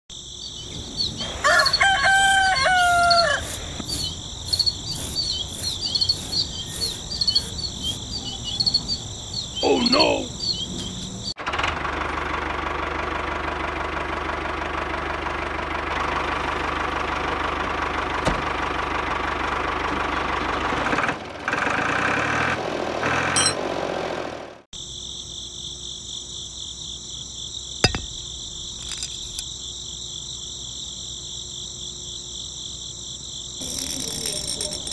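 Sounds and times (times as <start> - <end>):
crickets trilling: 0.1 - 11.4, 24.8 - 34.9
rooster crowing: 1.2 - 3.8
small electric motor whirring: 33.6 - 34.9.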